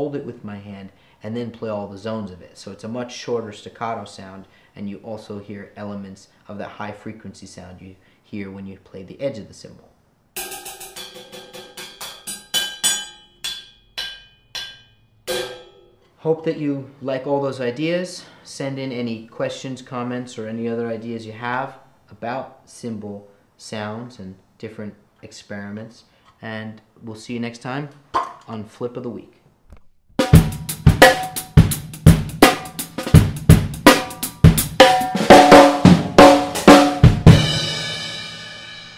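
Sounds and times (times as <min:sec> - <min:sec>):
choked cymbal hits with drumstick: 0:10.4 - 0:15.9, 0:30.2 - 0:38.9
cymbal crash ringing: 0:10.4 - 0:16.0.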